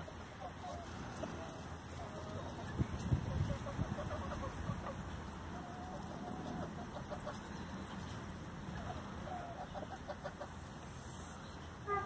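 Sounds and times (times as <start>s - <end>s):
chickens clucking: 0.1s - 10.6s.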